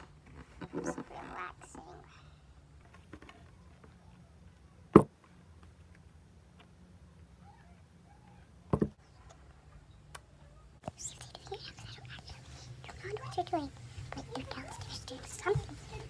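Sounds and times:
faint low hum: 0:00.0 - 0:16.0
knocks on wooden table: 0:08.7 - 0:09.0.

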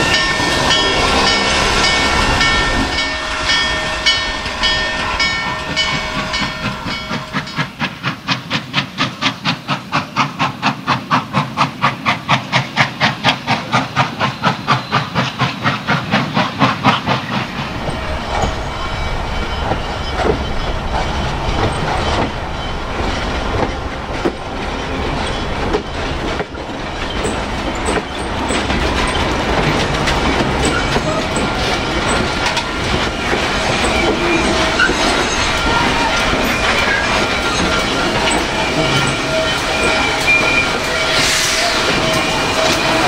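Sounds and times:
steam locomotive chuffing: 0:00.0 - 0:43.0
train rumbling past: 0:00.0 - 0:43.0
wheels clicking over rail joints: 0:21.5 - 0:41.0.

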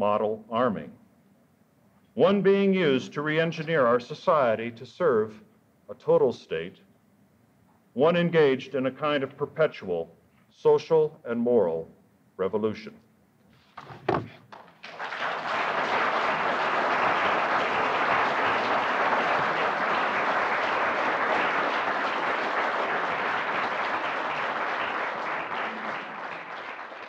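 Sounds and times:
audience applauding: 0:14.5 - 0:27.0.

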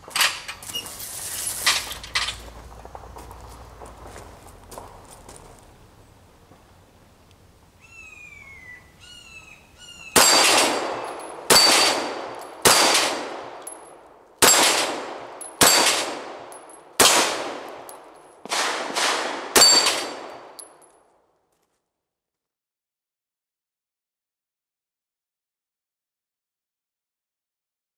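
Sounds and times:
pistol shots echoing: 0:10.2 - 0:20.8
steel plates ringing: 0:19.6 - 0:20.4.

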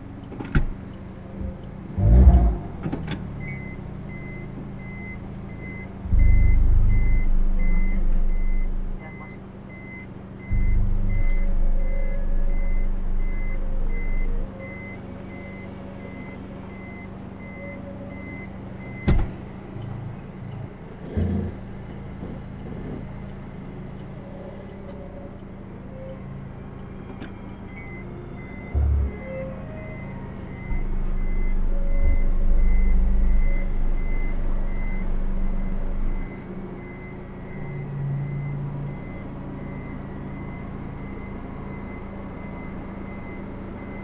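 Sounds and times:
car engine idling: 0:00.0 - 0:44.0
engine deep loud drone: 0:00.0 - 0:44.0
reverse warning beeper: 0:03.4 - 0:19.2, 0:27.4 - 0:44.0.

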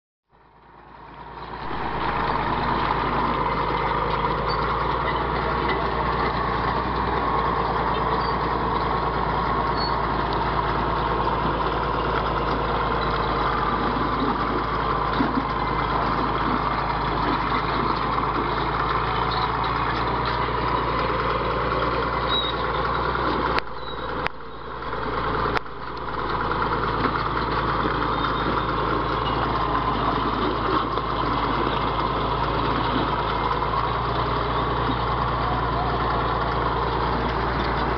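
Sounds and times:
bulldozer diesel engine running: 0:00.3 - 0:37.9.

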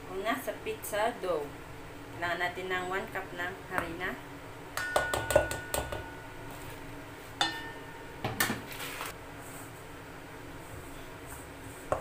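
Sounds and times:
kitchenware knocking: 0:04.8 - 0:06.2
kitchenware clinking: 0:04.8 - 0:06.3, 0:07.4 - 0:08.7.

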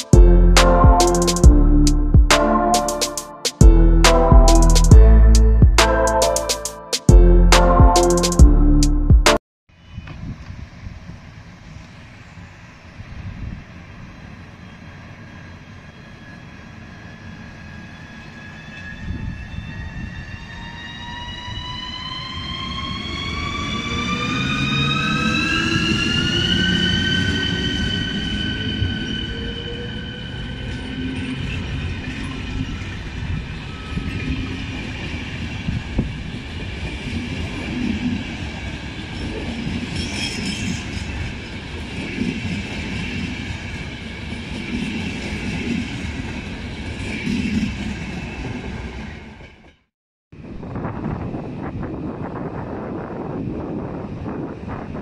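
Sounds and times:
electric locomotive whining: 0:09.9 - 0:49.7.

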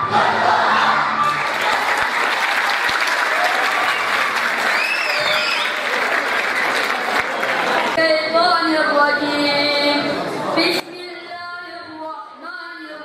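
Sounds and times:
audience applauding: 0:01.2 - 0:08.0.

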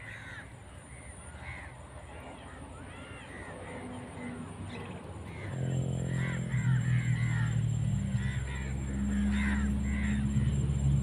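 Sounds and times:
crows cawing: 0:00.0 - 0:01.8, 0:05.2 - 0:11.0.

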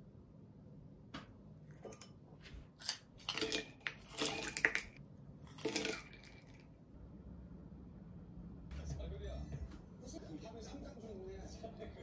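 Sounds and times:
ice cubes clinking against mug: 0:02.8 - 0:06.6
ice splashing into coffee: 0:03.2 - 0:06.6.

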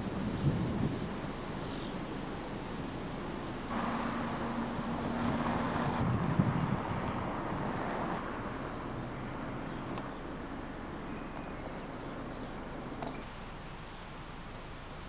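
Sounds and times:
outdoor background hiss: 0:00.0 - 0:15.0
bird chirping: 0:00.2 - 0:06.0, 0:11.0 - 0:14.2
low rumble: 0:03.7 - 0:09.7.

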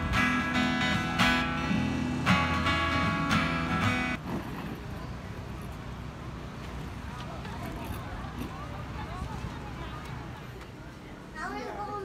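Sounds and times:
acoustic guitar strumming chords: 0:00.0 - 0:04.2
outdoor background noise: 0:00.0 - 0:12.0.

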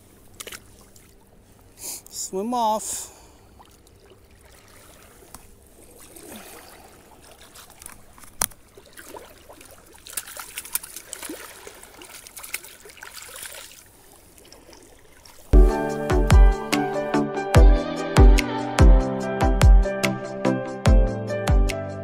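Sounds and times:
water splashing and trickling: 0:00.0 - 0:15.6
fish flapping in water: 0:03.6 - 0:15.5.

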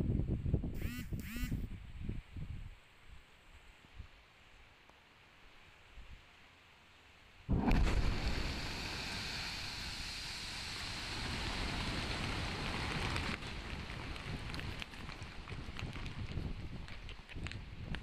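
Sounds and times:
rumble of falling rock debris: 0:07.5 - 0:10.0, 0:10.6 - 0:18.0
rock blast boom: 0:07.5 - 0:10.2.

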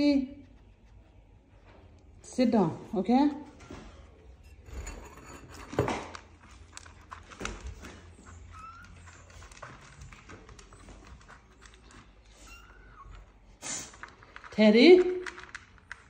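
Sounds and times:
animals scuffling and scrabbling: 0:03.4 - 0:14.6.

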